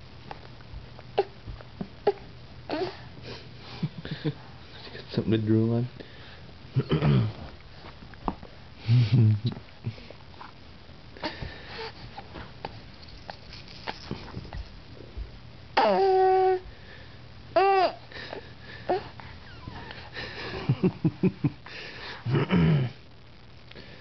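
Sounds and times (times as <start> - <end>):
baby grunting: 15.8 - 16.6.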